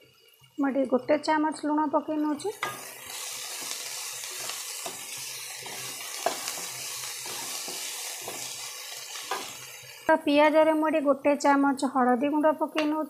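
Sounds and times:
vegetables sizzling in hot oil: 0:00.0 - 0:13.0
spatula scraping a pan: 0:02.5 - 0:09.7.

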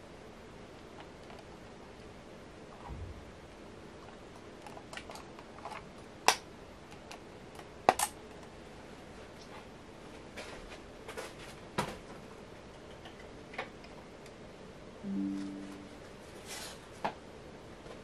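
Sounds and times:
faint steady hiss: 0:13.8 - 0:17.2.

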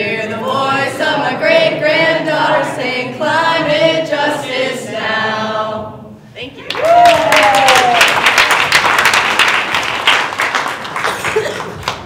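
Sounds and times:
group singing in unison: 0:00.0 - 0:06.3.

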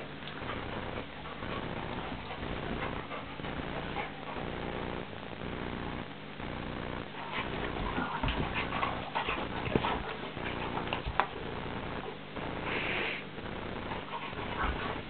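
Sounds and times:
dogs scuffling and mouthing: 0:00.0 - 0:05.2, 0:07.0 - 0:12.4, 0:13.7 - 0:15.0.

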